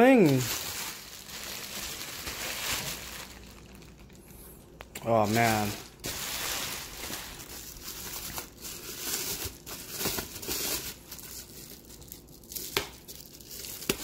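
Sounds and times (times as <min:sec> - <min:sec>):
bubble wrap crinkling: 0:00.0 - 0:14.0.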